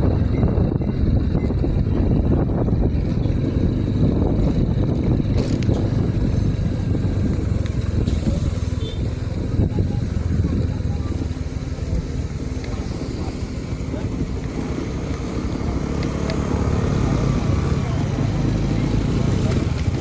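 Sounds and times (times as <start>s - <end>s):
motorcycle engine rumble: 0.0s - 20.0s
road noise: 0.0s - 20.0s.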